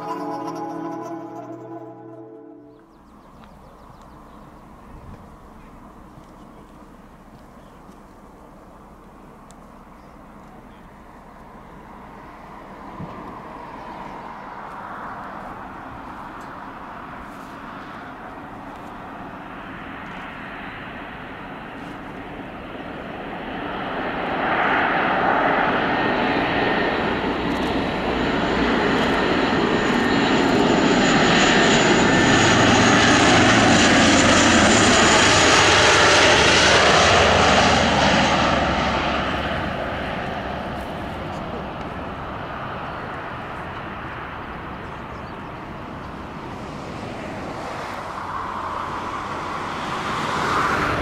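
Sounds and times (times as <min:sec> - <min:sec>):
aircraft engines passing overhead: 0:00.0 - 0:51.0.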